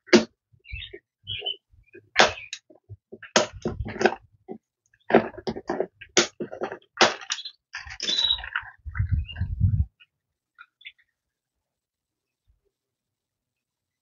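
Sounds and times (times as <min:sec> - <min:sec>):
rustling and scraping in bird carrier: 0:03.2 - 0:09.6.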